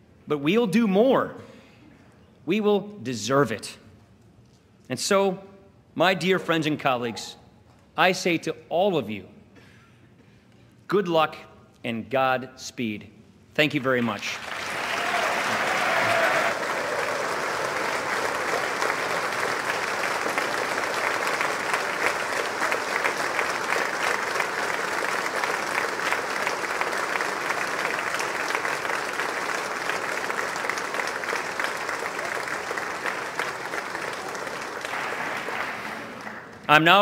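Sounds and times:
crowd applauding: 0:14.3 - 0:37.0.

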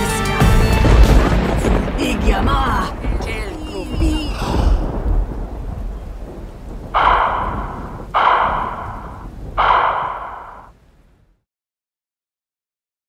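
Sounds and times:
dramatic sound effect hits: 0:06.8 - 0:10.7.

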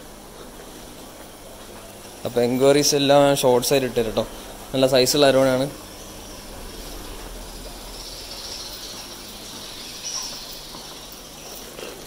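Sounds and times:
steady hissing noise: 0:00.0 - 0:12.0
low hum: 0:03.8 - 0:11.1
thin high-pitched hiss: 0:05.2 - 0:12.0.

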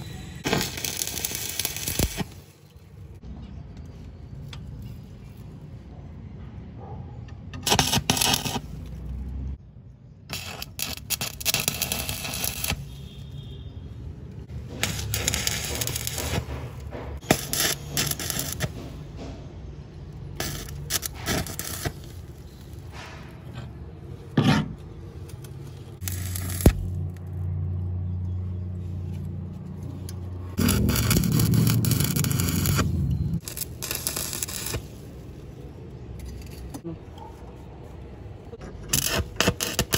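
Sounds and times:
arc welding crackling and sizzling: 0:00.2 - 0:03.2, 0:07.6 - 0:09.0, 0:10.3 - 0:13.6, 0:14.3 - 0:19.0, 0:20.1 - 0:23.0, 0:25.3 - 0:27.8, 0:30.1 - 0:36.8, 0:38.8 - 0:39.9.

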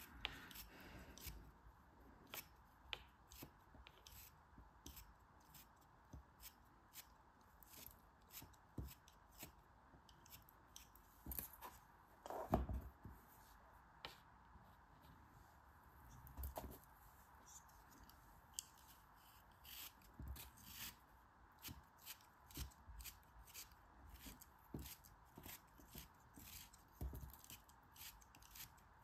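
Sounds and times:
knife cutting kinetic sand: 0:00.0 - 0:01.5, 0:02.2 - 0:11.5, 0:18.5 - 0:29.0.

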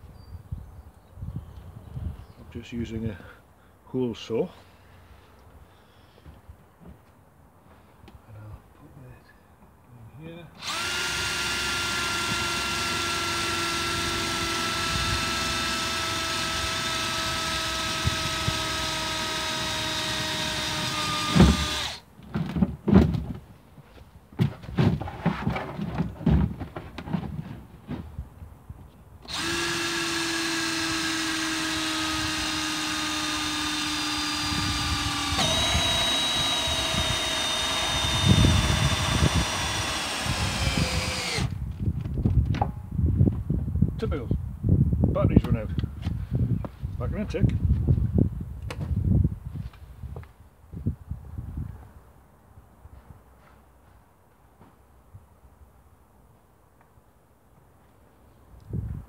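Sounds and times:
cordless drill motor whine: 0:10.6 - 0:22.0, 0:29.2 - 0:41.6
knocks and handling: 0:22.2 - 0:28.2.

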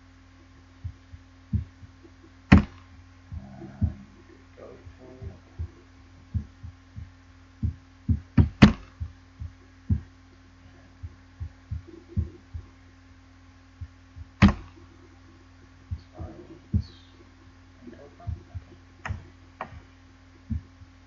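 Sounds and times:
steady electrical hum: 0:00.0 - 0:21.0
handling thumps: 0:00.4 - 0:10.1, 0:13.8 - 0:14.9, 0:17.9 - 0:21.0.

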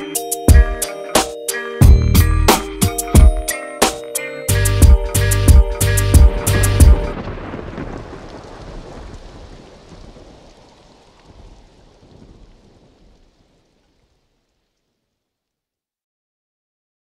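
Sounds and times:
low rumbling noise: 0:05.9 - 0:13.6.

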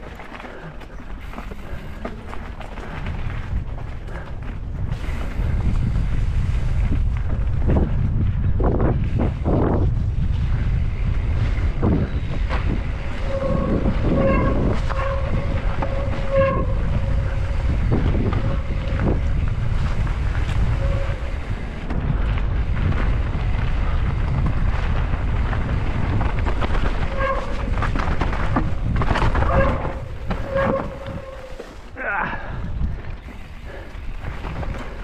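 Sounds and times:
bike rattling over trail: 0:00.0 - 0:35.0
wind buffeting microphone: 0:00.0 - 0:35.0
freewheel hub buzzing: 0:04.7 - 0:31.8.

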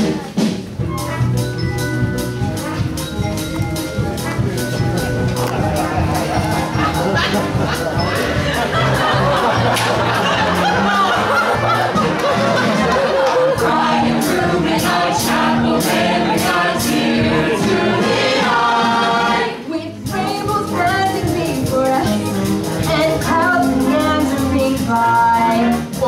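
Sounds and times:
instrumental accompaniment with beat: 0:00.0 - 0:26.0
cast singing together: 0:13.0 - 0:21.4.

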